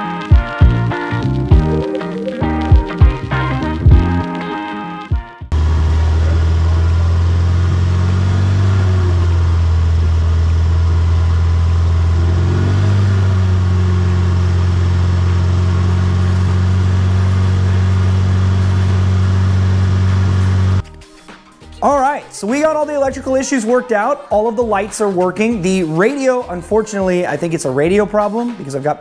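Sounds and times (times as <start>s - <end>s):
car engine idling: 5.5s - 20.8s.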